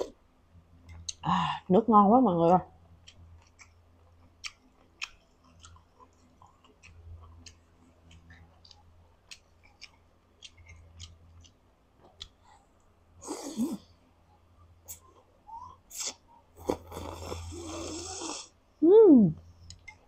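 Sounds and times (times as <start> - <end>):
chewing noises: 2.9 - 13.9, 14.9 - 18.4.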